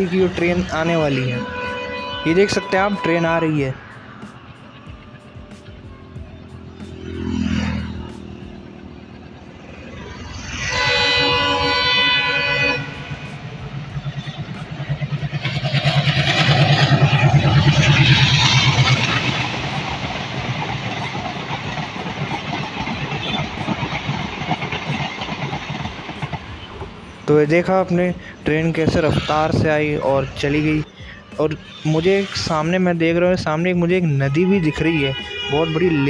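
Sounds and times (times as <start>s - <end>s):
train horn: 0.0s - 9.1s, 10.2s - 15.6s, 34.3s - 36.0s
wagons clattering over rails: 0.0s - 30.6s
road vehicle passing: 0.0s - 36.0s
train engine pulsing: 0.0s - 36.0s.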